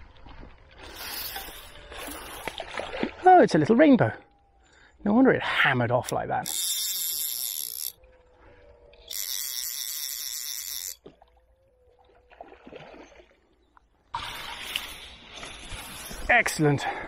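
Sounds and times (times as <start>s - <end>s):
fly reel ratchet buzzing: 6.0s - 8.0s, 9.1s - 11.1s.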